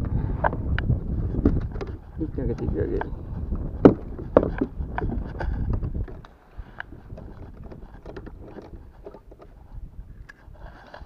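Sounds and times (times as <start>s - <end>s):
wind rumble on microphone: 0.0s - 11.0s
handling knocks and rustles: 3.6s - 9.6s.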